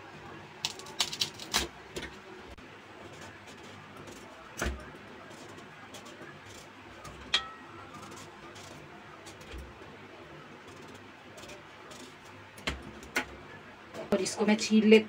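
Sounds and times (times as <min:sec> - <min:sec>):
knife clinking on steel plate: 0:07.3 - 0:07.7.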